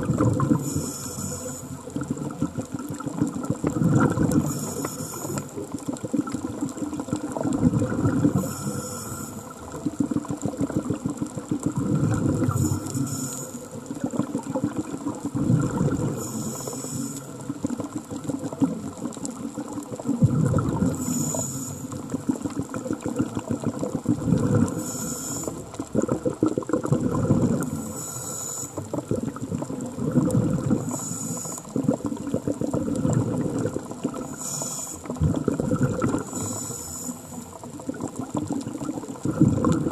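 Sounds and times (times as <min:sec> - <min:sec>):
exhaled bubbles gurgling: 0:00.0 - 0:39.9
regulator inhale hiss: 0:00.4 - 0:02.0, 0:04.3 - 0:05.6, 0:08.3 - 0:09.8, 0:12.4 - 0:14.0, 0:16.1 - 0:17.5, 0:20.8 - 0:22.2, 0:24.7 - 0:25.8, 0:27.6 - 0:29.0, 0:30.7 - 0:31.8, 0:34.1 - 0:35.2, 0:36.1 - 0:37.6.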